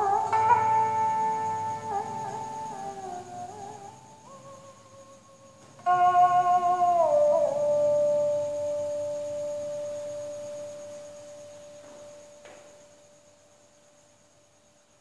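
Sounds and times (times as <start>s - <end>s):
faint knock: 11.8s - 12.8s.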